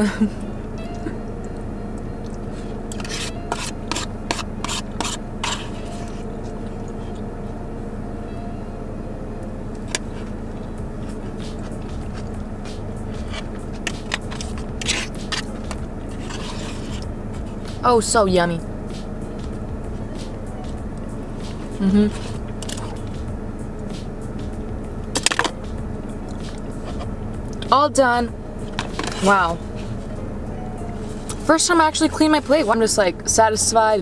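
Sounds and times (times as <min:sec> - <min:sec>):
steady low hum: 0:00.0 - 0:34.0
fork scraping plastic bowl: 0:02.9 - 0:06.3, 0:13.2 - 0:17.1.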